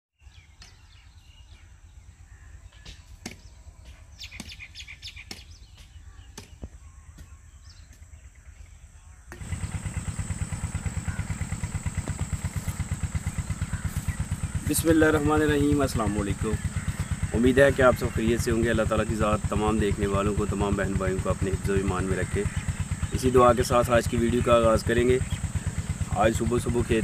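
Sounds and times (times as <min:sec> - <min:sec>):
birds chirping: 0:00.2 - 0:27.0
faint low engine drone: 0:00.2 - 0:27.0
hoe chopping into dry soil: 0:02.9 - 0:08.1
loud engine rapid low thudding: 0:09.3 - 0:27.0.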